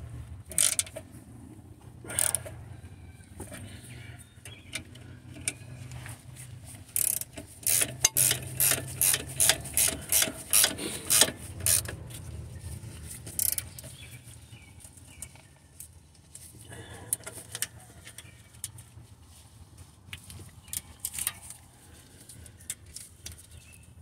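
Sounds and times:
ratchet wrench clicking: 0:00.5 - 0:01.0, 0:02.2 - 0:02.4, 0:07.0 - 0:12.0, 0:13.3 - 0:13.7.

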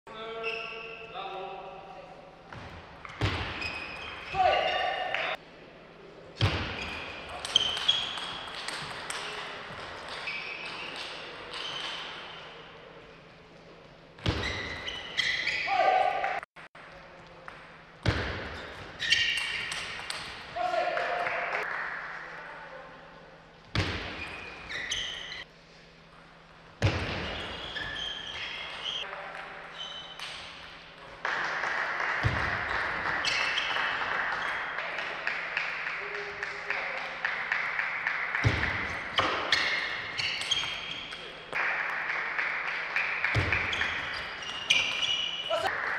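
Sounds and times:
shoes squeaking on floor: 0:00.4 - 0:01.2, 0:02.6 - 0:05.1, 0:10.1 - 0:12.5, 0:14.2 - 0:16.0, 0:18.5 - 0:20.0, 0:24.1 - 0:25.5, 0:27.1 - 0:29.1, 0:29.7 - 0:30.4, 0:32.7 - 0:33.8, 0:38.8 - 0:41.3, 0:43.4 - 0:45.7.

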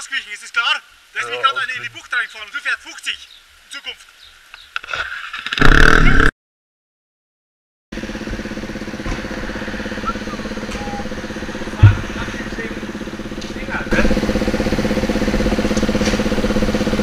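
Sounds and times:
loud burst of noise: 0:08.0 - 0:17.0
motorcycle engine idling: 0:08.0 - 0:17.0
short low thump: 0:11.7 - 0:12.5.

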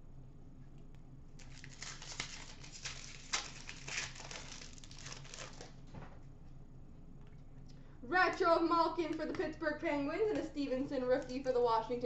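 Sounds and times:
wrapper crinkling and ripping: 0:01.4 - 0:05.9.

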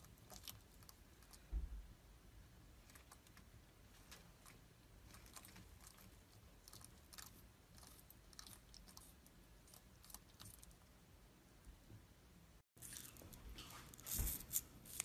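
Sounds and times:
lizard chewing leafy greens: 0:02.8 - 0:10.8.

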